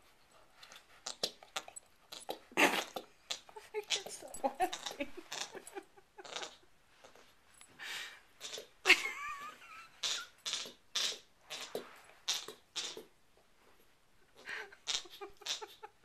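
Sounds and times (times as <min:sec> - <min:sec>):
puppy chewing: 0:00.5 - 0:05.8.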